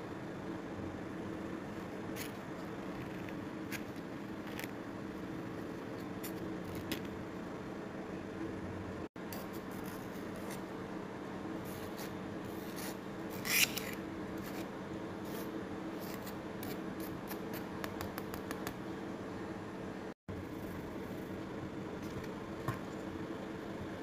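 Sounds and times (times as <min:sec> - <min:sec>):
steady background hum: 0:00.0 - 0:24.0
potato scraped through sieve: 0:11.6 - 0:17.7.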